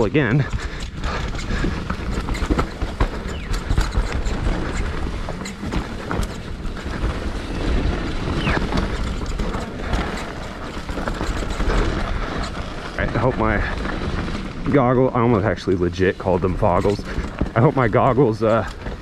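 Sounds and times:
bike chain and frame rattling: 0:00.0 - 0:19.0
tyres rolling over dirt and rocks: 0:00.0 - 0:19.0.

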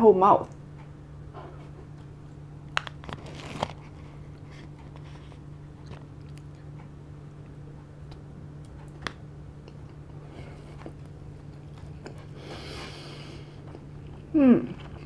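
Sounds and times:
steady low hum: 0:00.0 - 0:15.0
close chewing and wet mouth sounds: 0:03.6 - 0:15.0.

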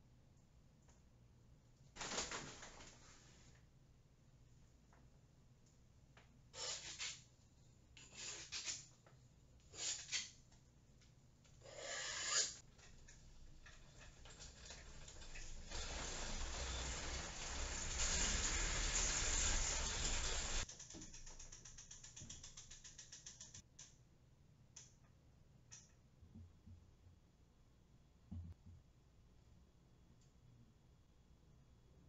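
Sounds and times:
spreader scraping wet paint: 0:12.3 - 0:20.7.

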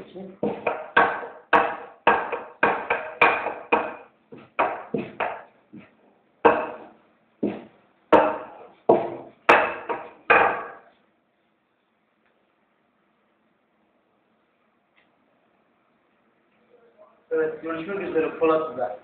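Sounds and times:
dough knocking on table: 0:00.4 - 0:10.8.

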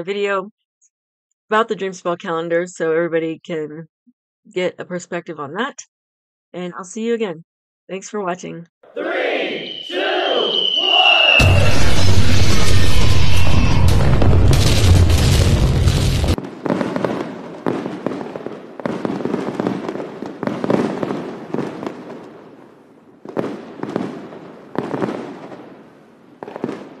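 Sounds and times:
firework bursts: 0:09.5 - 0:22.2
fireworks crackling: 0:09.7 - 0:22.4, 0:23.2 - 0:25.6, 0:26.4 - 0:27.0.

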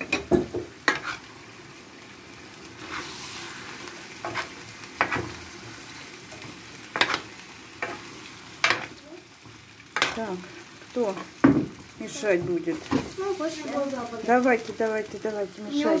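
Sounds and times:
metal spoon scraping a pan: 0:00.0 - 0:01.3, 0:02.8 - 0:05.5, 0:06.3 - 0:08.9, 0:10.0 - 0:11.4
meat sizzling in a skillet: 0:00.0 - 0:16.0.

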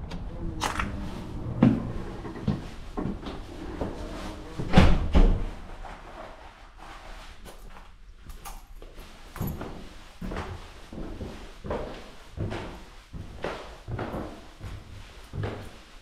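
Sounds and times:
door thudding shut: 0:04.6 - 0:05.5.

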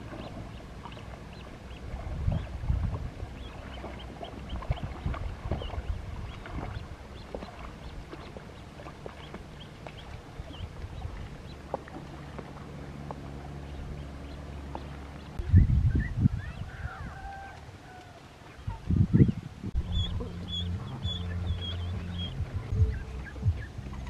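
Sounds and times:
dog splashing through water: 0:00.0 - 0:13.7.

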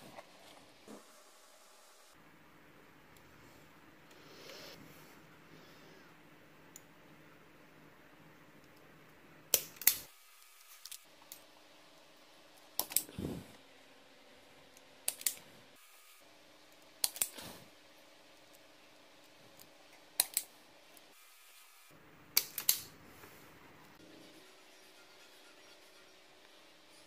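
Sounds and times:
wire stripper snapping clicks: 0:12.8 - 0:13.1, 0:15.1 - 0:15.4, 0:17.0 - 0:17.4, 0:20.2 - 0:20.5, 0:22.4 - 0:22.9.

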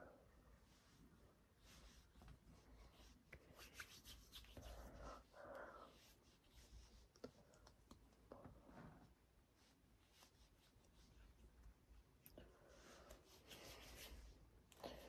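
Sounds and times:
palms rubbing together: 0:01.6 - 0:07.5, 0:13.0 - 0:14.4
hands patting skin: 0:01.8 - 0:05.0.

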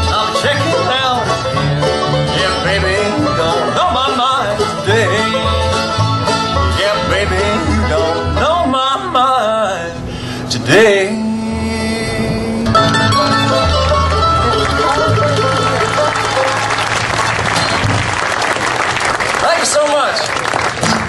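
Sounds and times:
banjo: 0:00.0 - 0:09.6, 0:12.6 - 0:18.8
fiddle: 0:00.0 - 0:09.6, 0:12.7 - 0:18.9
acoustic guitar: 0:00.0 - 0:19.2, 0:20.7 - 0:21.0
upright bass walking line: 0:00.0 - 0:21.0.

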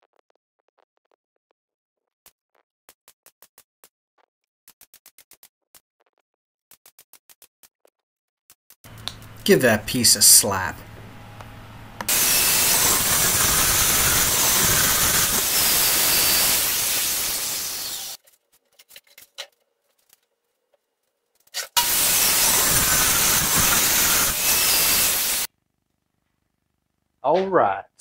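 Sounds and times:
table saw cutting plywood: 0:08.9 - 0:18.2, 0:21.7 - 0:25.5.

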